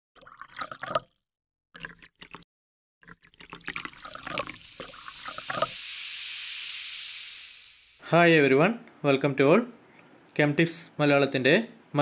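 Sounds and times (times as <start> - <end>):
liquid splashing and dripping: 1.8 - 2.4, 3.0 - 8.0
steady hiss: 4.2 - 8.6.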